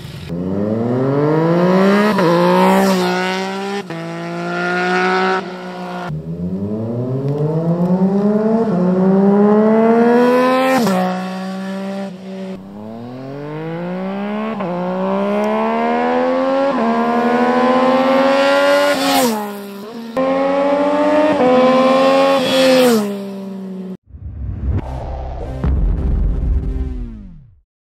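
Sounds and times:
motorcycle engine accelerating: 0.0s - 27.6s
music: 24.2s - 27.6s.

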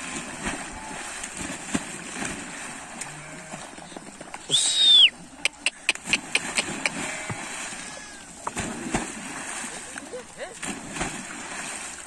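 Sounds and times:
water splashing: 0.0s - 12.0s
high whistle: 4.5s - 5.2s.

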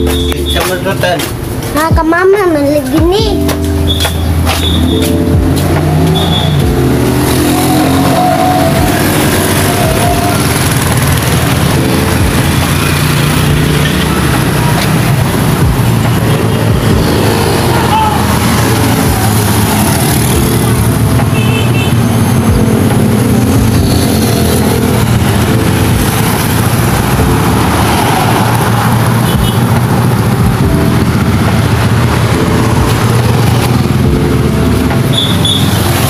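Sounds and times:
vehicle engine humming: 0.0s - 36.0s.

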